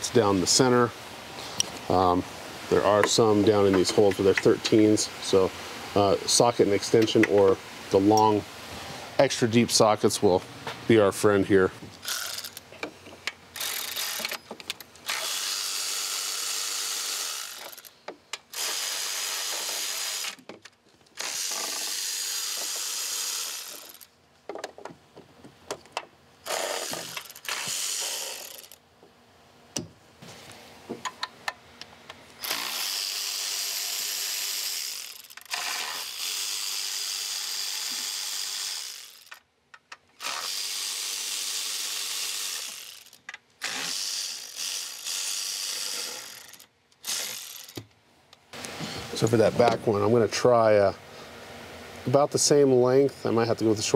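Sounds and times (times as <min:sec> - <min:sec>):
electric ratchet spinning bolts: 0:12.0 - 0:12.7, 0:13.5 - 0:20.5, 0:21.1 - 0:24.1, 0:26.4 - 0:28.8, 0:32.4 - 0:39.5, 0:40.2 - 0:47.8.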